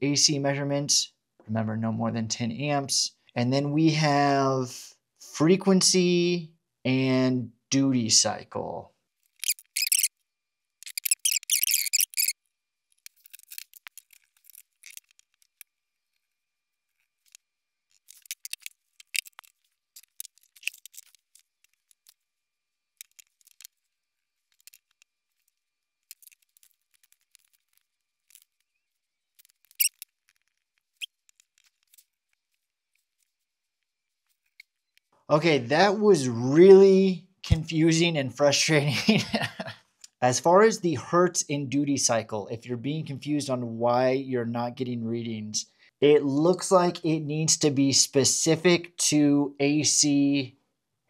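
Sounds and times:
faint clicks and scrapes of clips: 10.8s - 22.3s, 23.0s - 35.1s.

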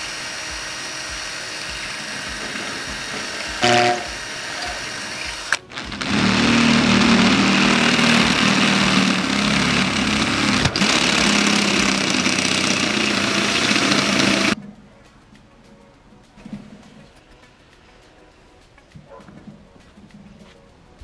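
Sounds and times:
small motor running: 0.0s - 14.6s.

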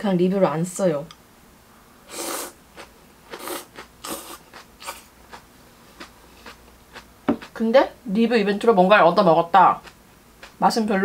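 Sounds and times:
person chewing noodles: 2.1s - 7.6s, 9.8s - 10.6s.

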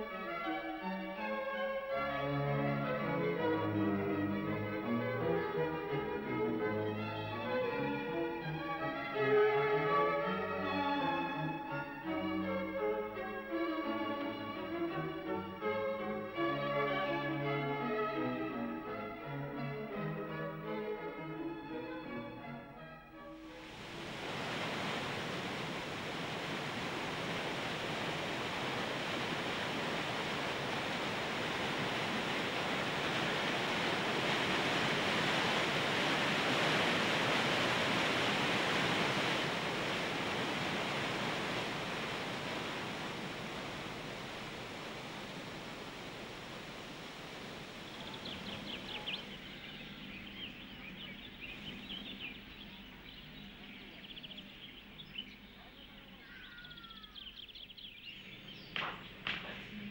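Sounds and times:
birds chirping: 23.5s - 59.9s
steady rushing noise: 23.6s - 52.0s.

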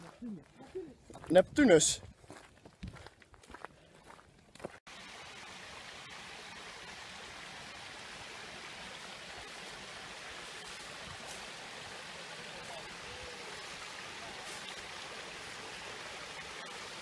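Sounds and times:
fountain water splashing: 4.9s - 17.0s.

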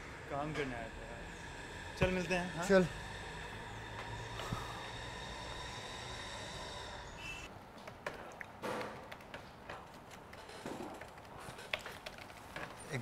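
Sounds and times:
background hum: 0.0s - 13.0s
laptop keyboard typing: 7.8s - 13.0s.

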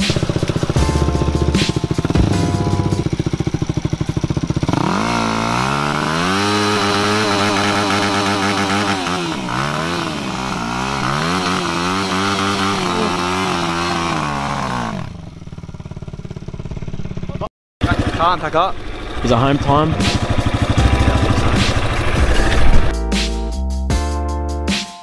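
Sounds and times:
wheel spinning in mud: 0.0s - 2.4s, 3.0s - 15.3s
dirt bike engine revving: 0.0s - 22.9s.

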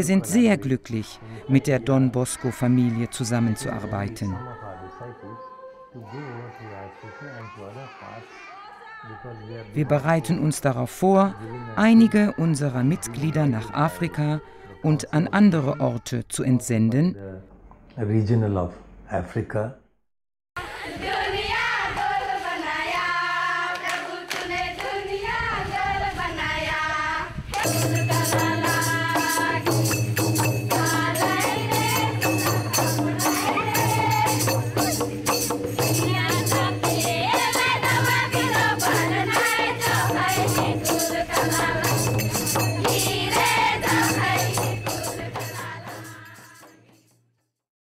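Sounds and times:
person singing: 1.2s - 16.0s
fast percussion beat: 27.6s - 47.2s.

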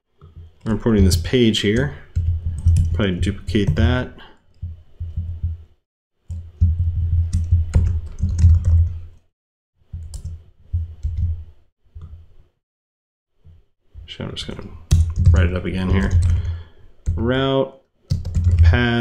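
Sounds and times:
typing on computer keyboard: 2.1s - 3.0s, 6.3s - 9.0s, 14.9s - 17.2s, 18.1s - 18.8s.

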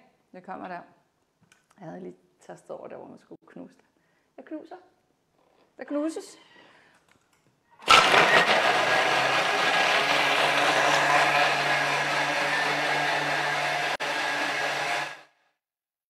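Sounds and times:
food processor crushing ice: 7.8s - 15.3s.

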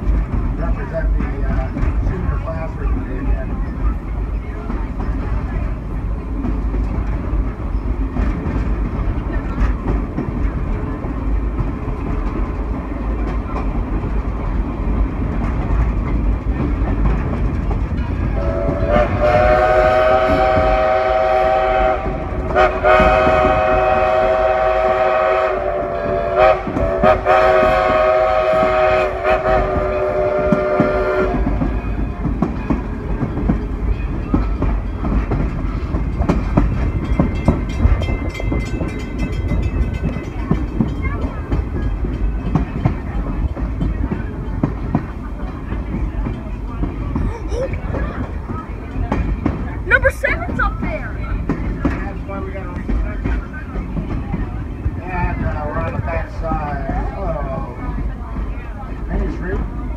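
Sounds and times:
train wheels clacking on rails: 0.0s - 59.9s
steam locomotive whistle: 18.4s - 31.7s.

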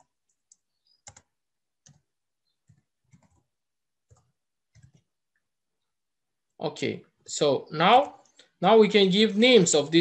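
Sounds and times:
faint keyboard typing: 0.0s - 5.6s.

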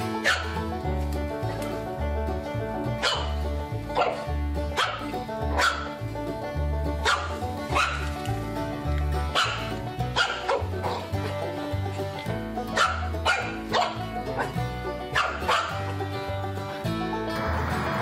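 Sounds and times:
background music with bass line: 0.0s - 18.0s
puppy yapping: 0.2s - 0.5s, 3.0s - 3.3s, 4.8s - 5.0s, 5.6s - 5.9s, 7.0s - 8.0s, 9.3s - 11.0s, 12.7s - 14.6s, 15.2s - 15.8s.

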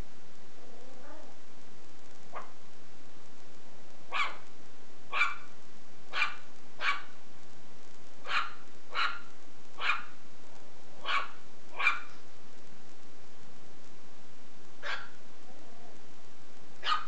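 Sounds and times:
puppy yapping: 4.1s - 4.4s, 5.1s - 5.5s, 6.1s - 7.1s, 8.3s - 10.1s, 11.0s - 12.1s, 14.8s - 15.2s.

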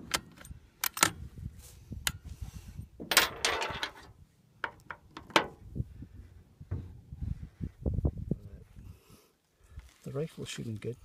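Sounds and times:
rifle bolt metallic clicks: 0.0s - 1.2s.

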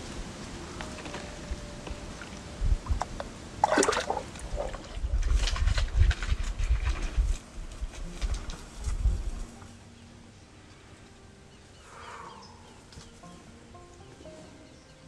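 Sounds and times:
water splashing in a pool: 2.0s - 6.3s.

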